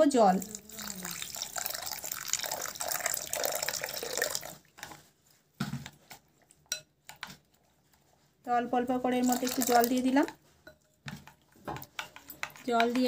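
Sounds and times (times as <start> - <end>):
spoon stirring in a bowl: 0.0 - 13.0
water pouring into a bowl: 0.3 - 4.7, 9.2 - 10.0.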